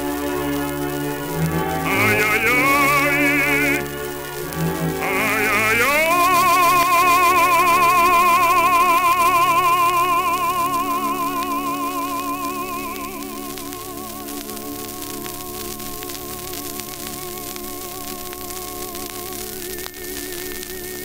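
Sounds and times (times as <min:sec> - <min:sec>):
record surface crackle and hiss: 0:00.0 - 0:21.0
baritone singing with orchestra: 0:01.5 - 0:04.1, 0:04.8 - 0:14.4.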